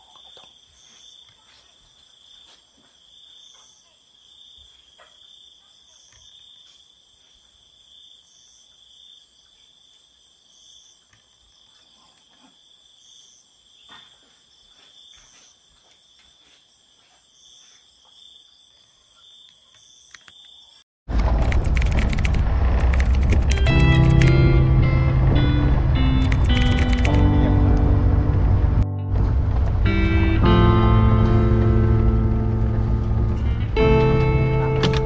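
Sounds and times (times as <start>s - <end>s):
crickets trilling: 0.0s - 20.8s
high insect chirp: 0.0s - 20.8s.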